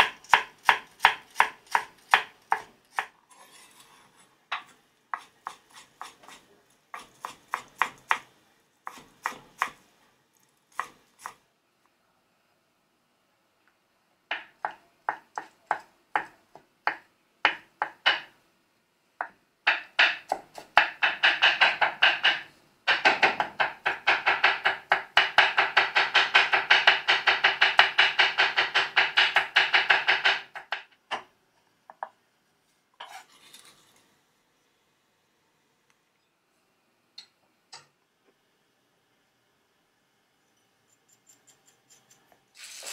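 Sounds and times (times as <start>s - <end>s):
knife chopping on wooden board: 0.0s - 3.1s, 4.5s - 8.3s, 19.7s - 31.2s
knife scrape: 3.3s - 4.3s, 33.0s - 34.0s, 40.9s - 42.9s.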